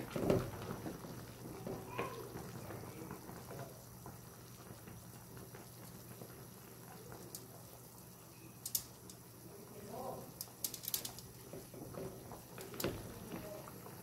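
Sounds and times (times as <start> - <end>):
soup bubbling in a pot: 0.0 - 14.0
wooden spoon stirring broth: 10.4 - 14.0.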